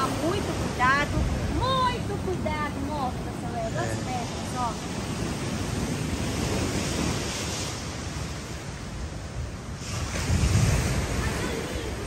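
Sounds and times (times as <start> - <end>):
surf washing on sand: 0.0 - 12.0
wind buffeting microphone: 0.0 - 12.0.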